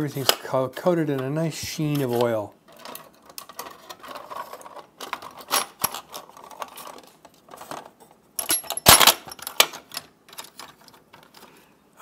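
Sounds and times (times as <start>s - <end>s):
drill bits clinking against metal case: 8.4s - 10.9s.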